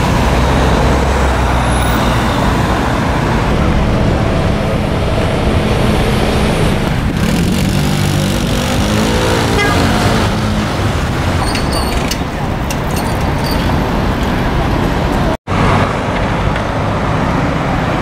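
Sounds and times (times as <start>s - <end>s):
city road traffic: 0.0s - 18.0s
engine passing close by: 2.5s - 11.4s.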